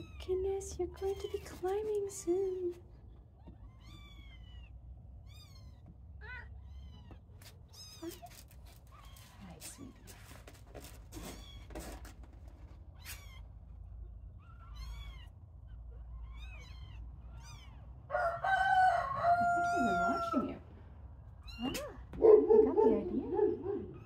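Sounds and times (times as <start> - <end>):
kittens mewing: 3.4 - 20.6, 21.4 - 24.0
rooster crowing: 18.1 - 20.6.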